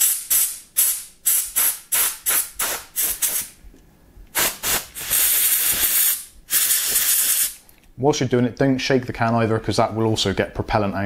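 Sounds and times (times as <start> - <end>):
compressed air can hissing: 0.0 - 3.6, 4.3 - 7.6.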